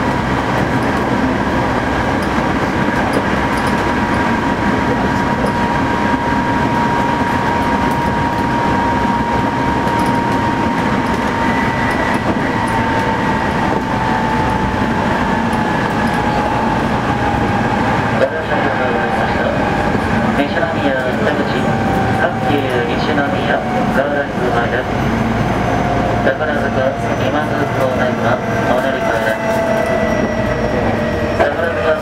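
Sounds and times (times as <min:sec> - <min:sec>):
train wheels rumbling on rail: 0:00.0 - 0:32.0.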